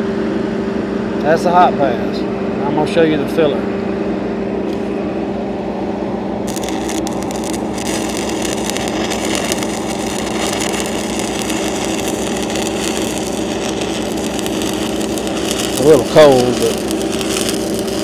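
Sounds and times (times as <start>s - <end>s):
engine hum: 3.7s - 18.0s
welding arc crackling and hissing: 6.5s - 18.0s.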